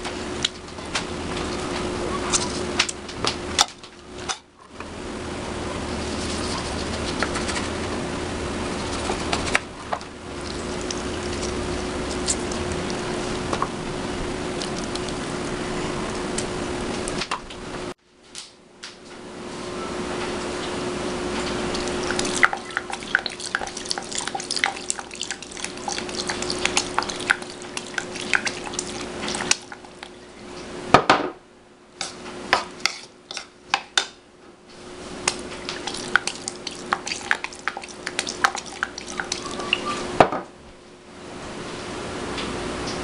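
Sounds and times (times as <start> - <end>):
steady hum: 0.0 - 43.0.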